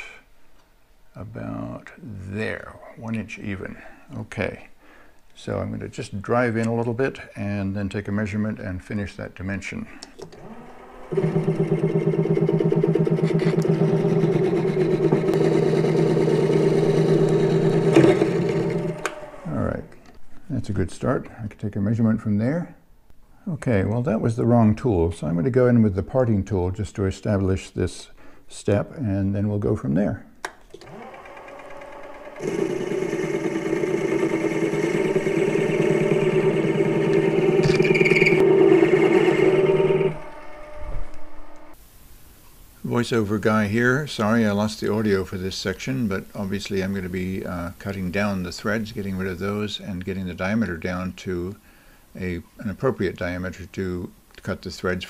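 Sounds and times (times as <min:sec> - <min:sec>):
metal lathe motor hum: 0:10.4 - 0:19.5, 0:30.8 - 0:41.8.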